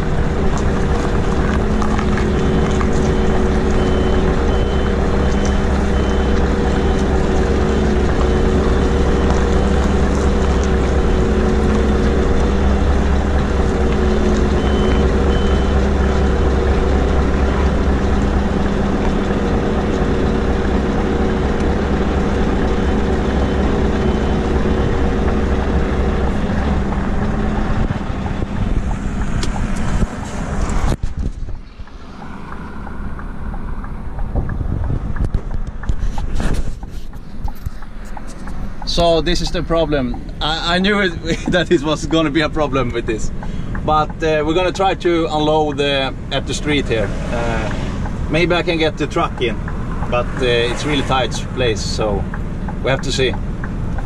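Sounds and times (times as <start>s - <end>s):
truck diesel engine running: 0.0s - 54.0s
reversing alarm beeping: 1.6s - 18.6s, 21.4s - 26.4s.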